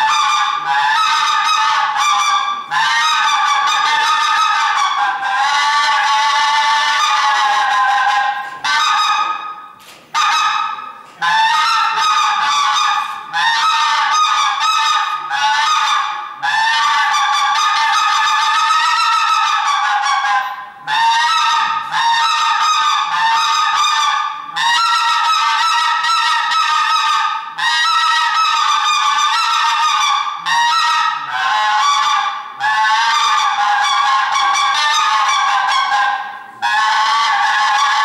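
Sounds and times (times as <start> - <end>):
mouth-blown game call: 0.0 - 38.0.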